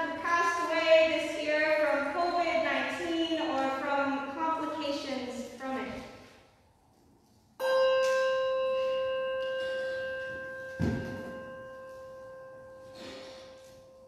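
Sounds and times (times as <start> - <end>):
handbell ringing: 7.6 - 14.0.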